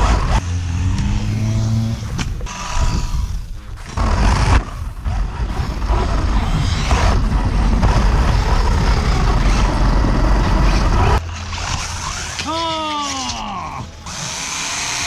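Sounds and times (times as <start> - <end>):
rc car rumbling over concrete: 2.1 - 12.4.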